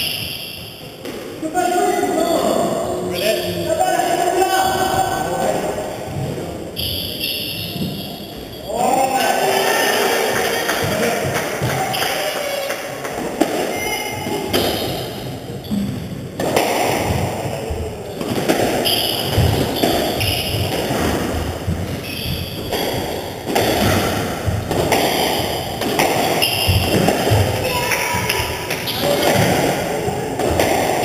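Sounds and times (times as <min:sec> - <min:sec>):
squash ball thuds and taps: 0:18.2 - 0:29.8.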